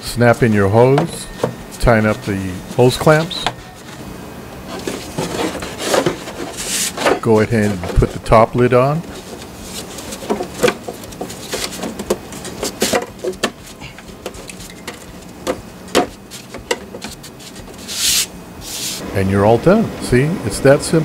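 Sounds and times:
plastic covers clicking and knocking: 9.1s - 17.2s.

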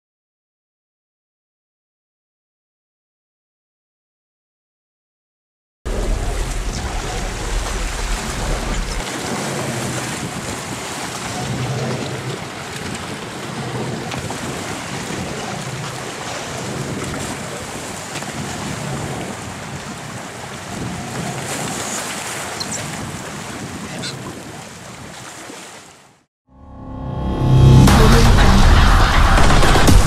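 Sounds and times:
low rumble: 5.9s - 10.6s, 26.5s - 30.0s
wind buffeting microphone: 5.9s - 25.4s
choppy waves splashing: 5.9s - 26.3s.

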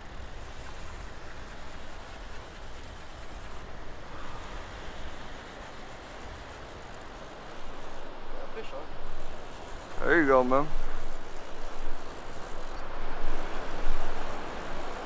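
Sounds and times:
surf washing: 0.0s - 15.0s
wind on microphone: 9.0s - 15.0s.

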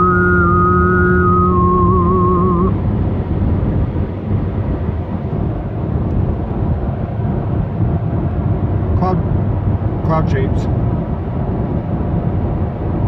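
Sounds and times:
wavering vibrato music tones: 0.0s - 2.8s
car rumble from inside cabin: 0.0s - 13.0s.

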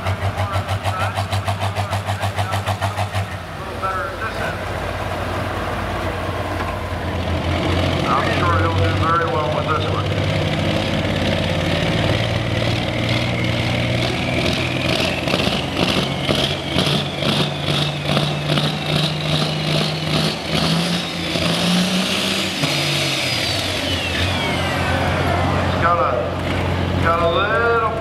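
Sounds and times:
diesel engine running under load: 0.0s - 28.0s
turbocharger whistle: 12.8s - 25.8s.

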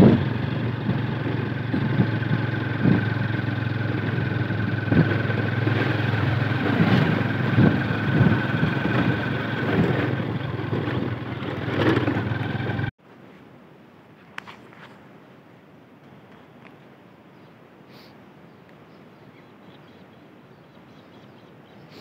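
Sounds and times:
bike rattling over bumps: 0.0s - 12.9s
motorcycle engine running: 0.0s - 12.9s
quiet outdoor ambience: 0.0s - 22.0s.

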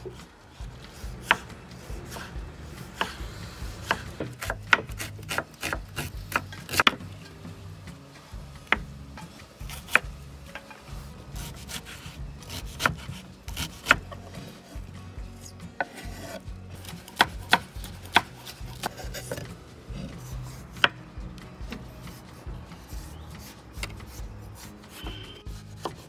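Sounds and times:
knife chopping on wooden board: 1.0s - 7.0s, 8.7s - 8.9s, 9.7s - 10.7s, 11.4s - 14.4s, 15.8s - 21.0s, 23.0s - 26.0s
knife rubbing and scraping: 10.7s - 17.0s, 18.0s - 21.0s, 22.0s - 26.0s.

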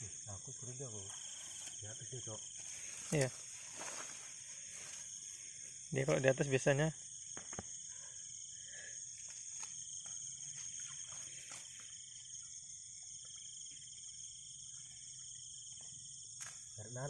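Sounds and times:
crickets and night insects trilling: 0.0s - 17.0s.

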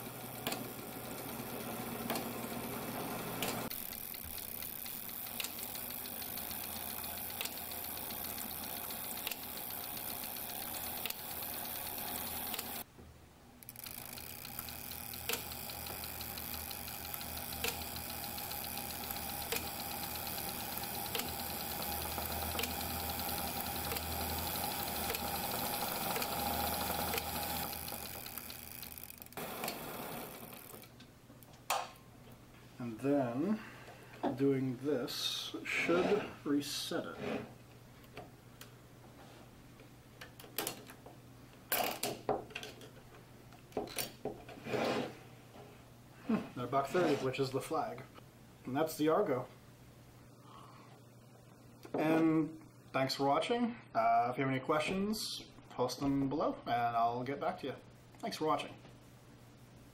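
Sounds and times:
whir of turning gears: 0.0s - 12.8s, 13.6s - 30.9s.

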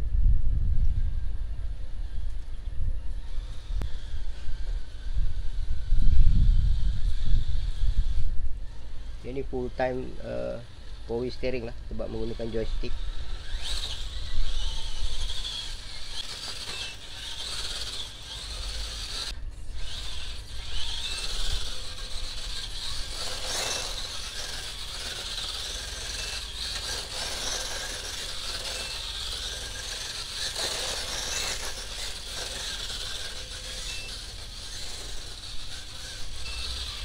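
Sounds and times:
electric motor and gears whirring: 0.2s - 37.0s
short high beep: 36.4s - 36.8s.

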